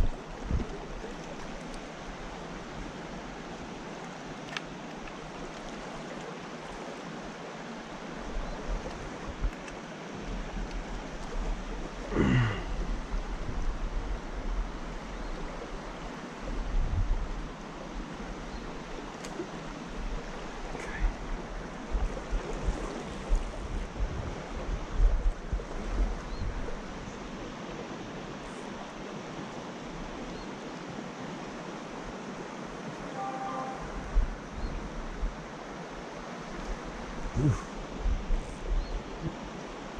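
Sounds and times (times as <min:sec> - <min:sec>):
creek running over rocks: 0:00.0 - 0:39.9
wind buffeting microphone: 0:20.8 - 0:27.0.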